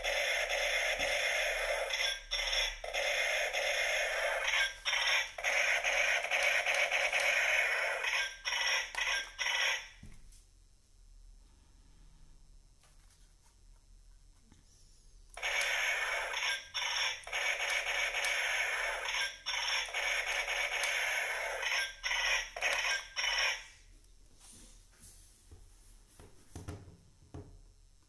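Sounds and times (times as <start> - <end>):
toy gun electronic shooting effects: 0.0 - 10.0, 15.4 - 23.7.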